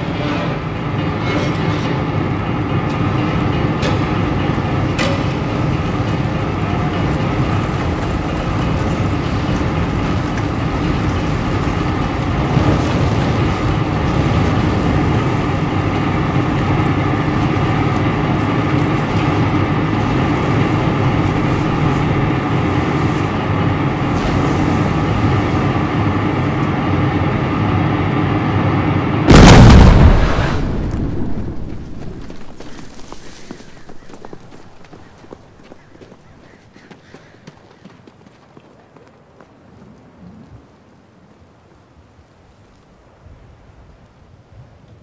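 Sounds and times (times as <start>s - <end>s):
heavy rushing of burning gusher: 1.9s - 33.6s
loud explosion: 29.3s - 32.0s.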